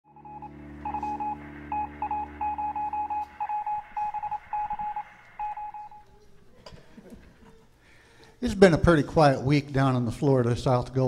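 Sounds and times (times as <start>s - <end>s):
morse code beeping: 0.1s - 6.1s.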